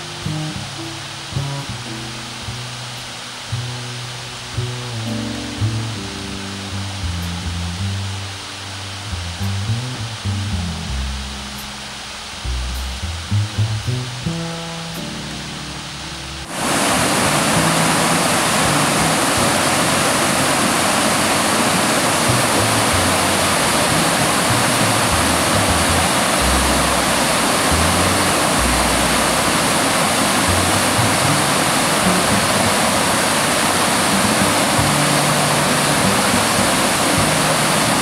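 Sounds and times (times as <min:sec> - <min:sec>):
low music notes: 0:00.0 - 0:38.0
waterfall rushing: 0:00.0 - 0:38.0.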